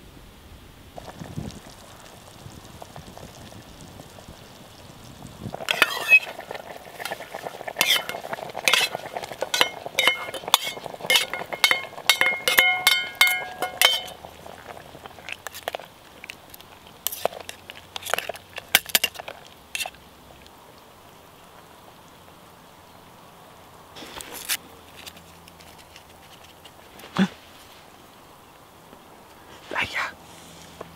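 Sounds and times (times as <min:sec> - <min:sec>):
metal spoon scraping steel bowl: 0:05.6 - 0:14.2.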